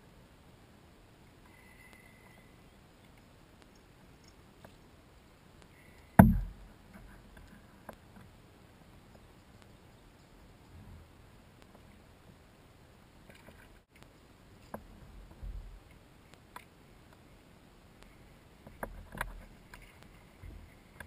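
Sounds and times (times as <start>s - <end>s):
heavy knock on plastic hull: 6.2s - 6.6s
faint handling noise: 18.0s - 21.0s.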